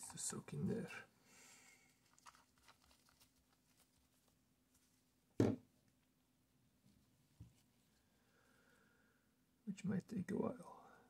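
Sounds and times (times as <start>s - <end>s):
gloved hands rustling: 1.4s - 6.0s.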